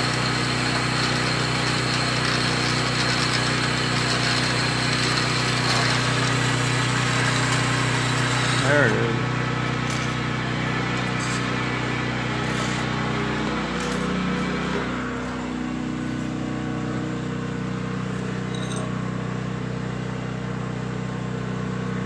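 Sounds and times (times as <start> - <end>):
band saw cutting steel: 0.0 - 16.1.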